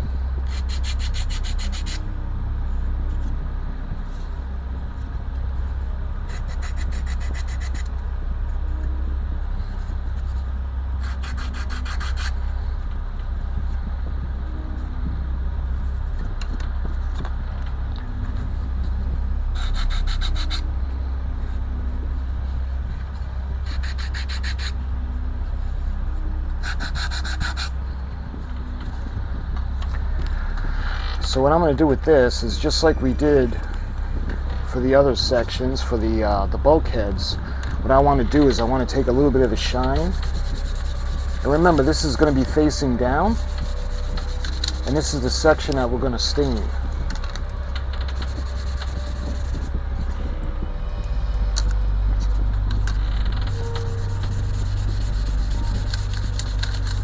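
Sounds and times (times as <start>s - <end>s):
low hum: 0.0s - 57.0s
rubbing wooden parts: 39.4s - 46.6s, 47.4s - 49.8s, 52.8s - 57.0s.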